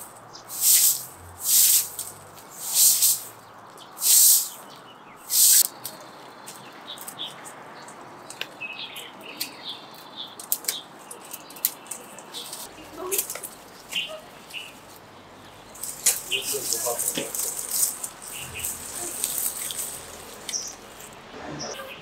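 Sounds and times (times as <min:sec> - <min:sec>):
small birds chirping: 0:00.0 - 0:22.0
loud hissing swishes: 0:00.5 - 0:03.4, 0:04.0 - 0:04.6, 0:05.3 - 0:05.6.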